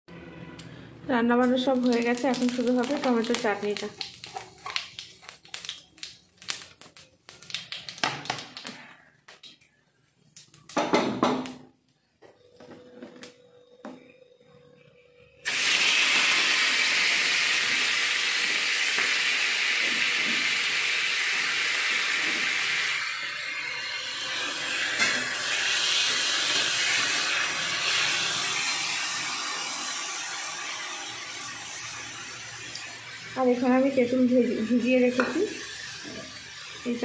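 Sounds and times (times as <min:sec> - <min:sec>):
tomatoes sizzling in hot oil: 0:01.4 - 0:08.9, 0:15.4 - 0:37.0.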